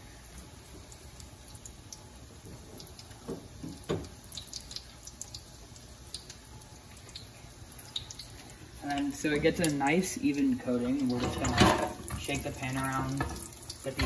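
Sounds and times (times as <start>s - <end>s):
chicken frying in oil: 0.0s - 14.0s.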